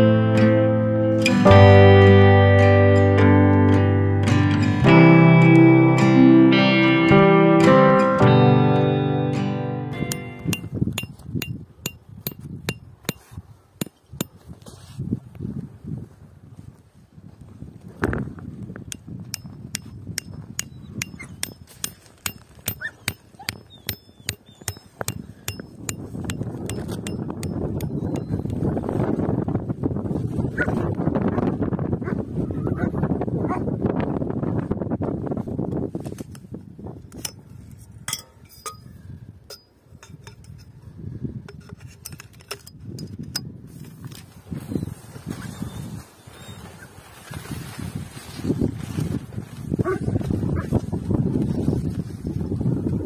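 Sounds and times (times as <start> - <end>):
hatchet hammering metal tent stake: 10.0 - 14.4, 18.9 - 28.7, 38.1 - 38.9, 39.5 - 40.4.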